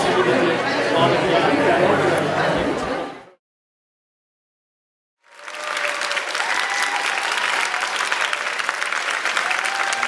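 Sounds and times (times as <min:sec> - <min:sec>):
audience applause: 0:05.2 - 0:10.0.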